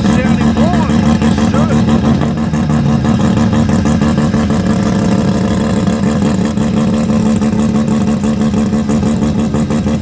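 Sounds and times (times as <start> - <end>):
car engine idling loudly: 0.0 - 10.0.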